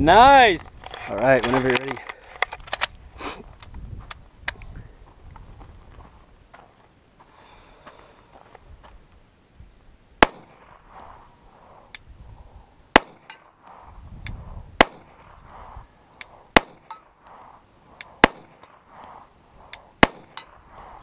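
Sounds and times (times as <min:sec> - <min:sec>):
pistol shots: 0:10.2 - 0:10.9, 0:12.9 - 0:13.8, 0:14.8 - 0:15.4, 0:16.2 - 0:17.0, 0:18.0 - 0:18.9, 0:20.0 - 0:20.6.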